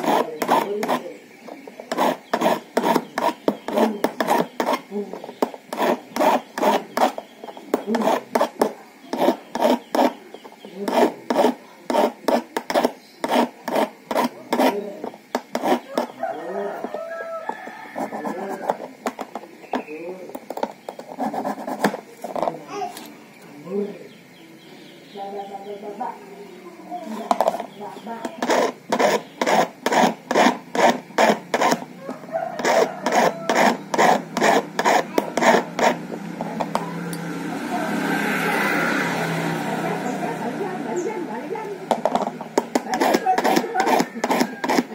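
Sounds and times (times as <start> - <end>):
hand file rasping on metal: 0.0 - 1.2, 1.9 - 19.3, 28.2 - 37.1, 42.1 - 44.9.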